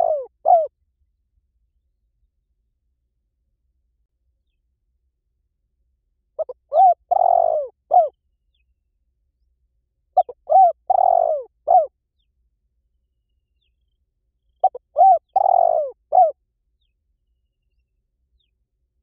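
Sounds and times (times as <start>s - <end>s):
dove cooing: 0.0s - 0.7s, 6.4s - 8.2s, 10.2s - 11.9s, 14.6s - 16.4s.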